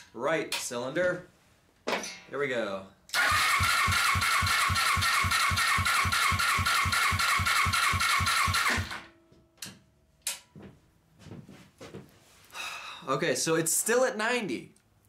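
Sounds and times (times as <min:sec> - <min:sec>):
engine cranking by starter: 0:03.1 - 0:09.1.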